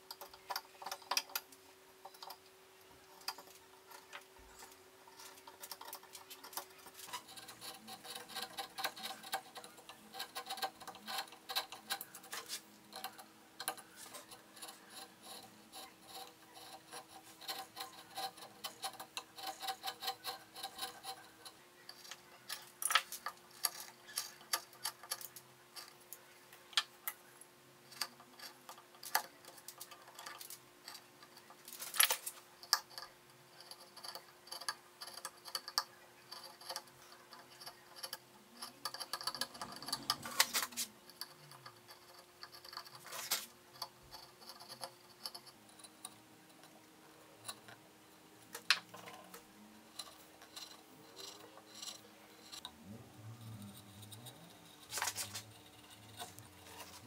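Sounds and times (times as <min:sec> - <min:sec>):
faint steady hum: 0:00.0 - 0:57.0
chisels cutting wood: 0:03.2 - 0:26.1, 0:48.4 - 0:57.0.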